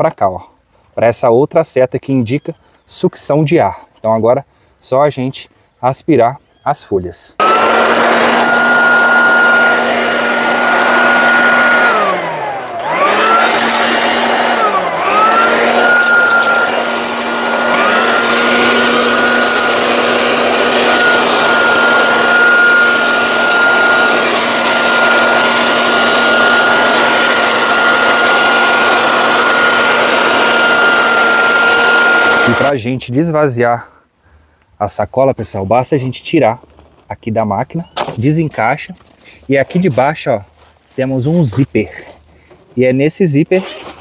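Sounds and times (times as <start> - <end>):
leaf vacuum motor whine: 7.4 - 32.7.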